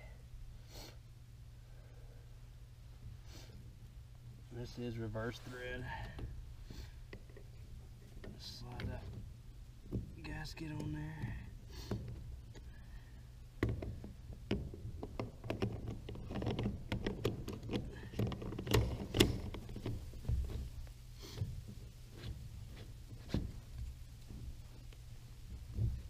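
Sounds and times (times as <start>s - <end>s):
plastic parts clicking and knocking: 13.6s - 20.8s.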